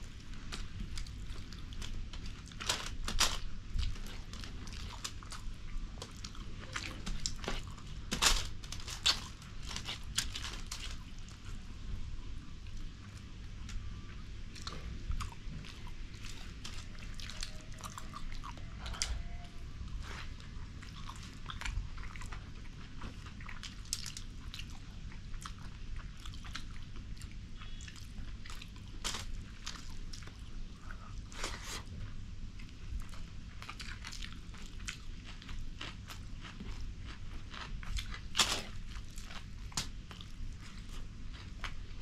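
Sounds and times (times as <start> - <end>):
chewing: 0.0 - 11.7, 12.6 - 42.0.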